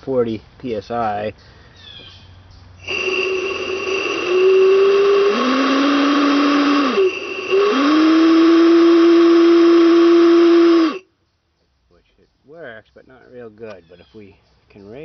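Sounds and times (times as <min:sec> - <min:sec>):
loud air hiss: 0:02.8 - 0:11.0
air whistle tone: 0:02.8 - 0:11.1.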